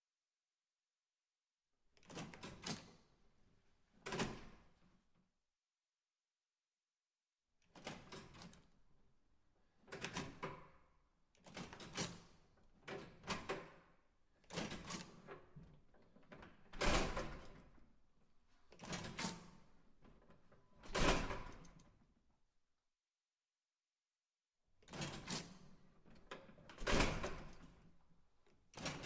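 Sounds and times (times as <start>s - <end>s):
push-bar door latch clatter: 14.4s - 15.5s.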